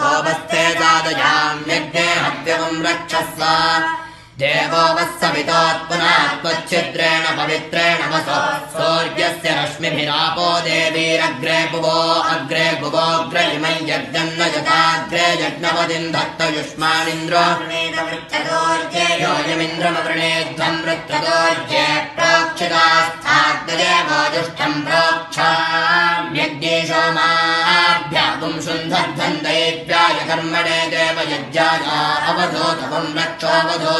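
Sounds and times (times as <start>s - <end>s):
boys chanting mantras: 0.0s - 33.9s.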